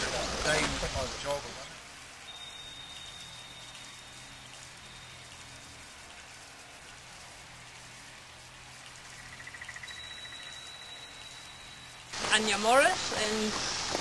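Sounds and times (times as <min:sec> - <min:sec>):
outdoor background hiss: 0:00.0 - 0:14.0
rapid chirping: 0:02.1 - 0:06.4, 0:08.7 - 0:12.2
thin high tone: 0:02.2 - 0:05.8, 0:09.2 - 0:12.8.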